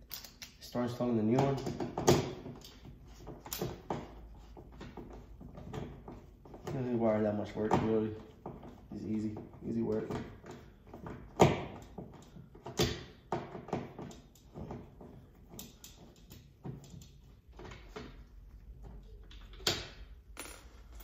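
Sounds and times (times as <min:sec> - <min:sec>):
screwdriver clicks and rattles: 0:00.0 - 0:00.6.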